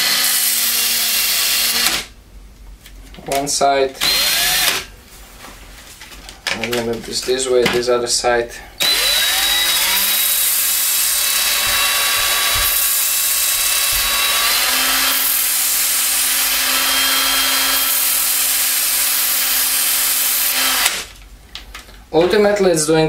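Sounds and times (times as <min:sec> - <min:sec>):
cordless drill motor whine: 0:00.0 - 0:02.0, 0:04.0 - 0:04.8, 0:08.8 - 0:21.0.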